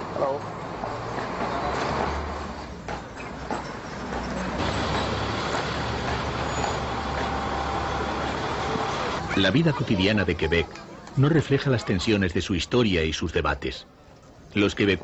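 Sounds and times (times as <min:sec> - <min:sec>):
bus engine passing: 0:00.0 - 0:09.5
street traffic: 0:00.0 - 0:15.0.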